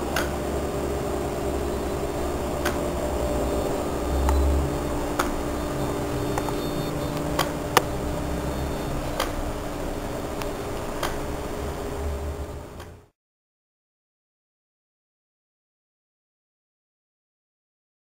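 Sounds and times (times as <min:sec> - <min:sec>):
electric motor whine: 0:00.0 - 0:13.1
low hum: 0:00.0 - 0:13.1
sharp clicks: 0:00.1 - 0:00.4, 0:02.6 - 0:02.9, 0:05.1 - 0:05.5, 0:06.2 - 0:08.0, 0:10.4 - 0:11.2.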